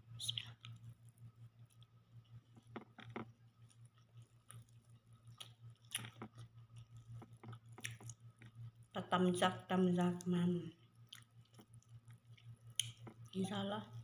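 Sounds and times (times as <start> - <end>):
steady low hum: 0.0 - 14.0
person chewing: 0.4 - 8.8, 10.8 - 13.4.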